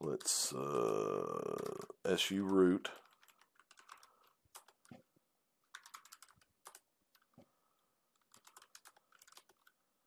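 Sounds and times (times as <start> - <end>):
typing on computer keyboard: 0.8 - 5.0, 5.7 - 7.3, 8.1 - 9.8.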